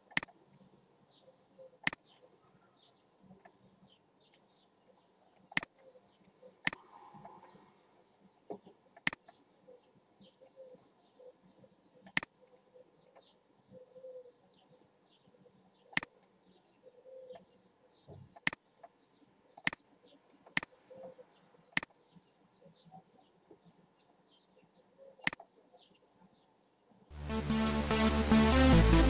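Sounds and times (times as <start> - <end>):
computer mouse clicks: 0.0 - 0.4, 5.4 - 5.8, 9.0 - 9.4, 12.0 - 12.3, 15.9 - 16.1, 18.3 - 19.0, 19.6 - 19.8, 20.4 - 22.0, 25.2 - 25.5
faint bird chirping: 0.0 - 27.1.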